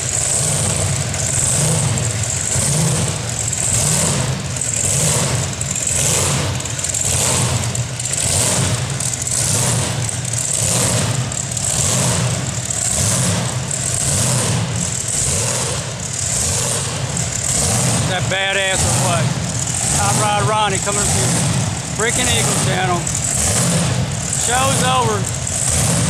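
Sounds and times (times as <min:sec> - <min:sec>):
engines rumbling: 0:00.0 - 0:26.0.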